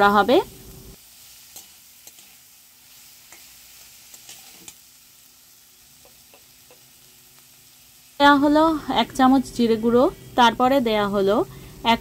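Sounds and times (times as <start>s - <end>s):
vegetables sizzling in oil: 0.0s - 12.0s
metal spatula scraping pan: 3.2s - 4.8s.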